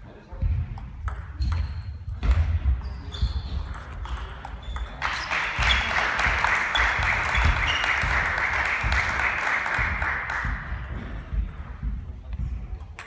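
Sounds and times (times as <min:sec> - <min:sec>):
clapping and applause: 0:05.0 - 0:10.9.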